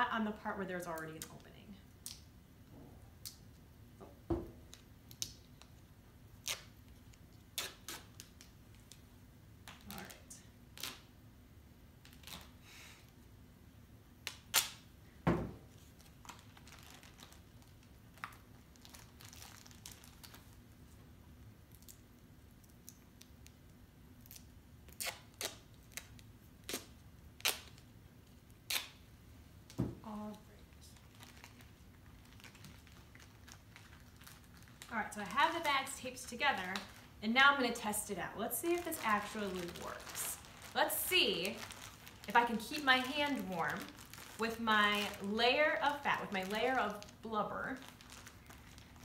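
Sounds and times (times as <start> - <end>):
duct tape peeled off roll: 6.4 - 9.0, 14.2 - 14.9, 24.2 - 27.9, 28.6 - 29.0.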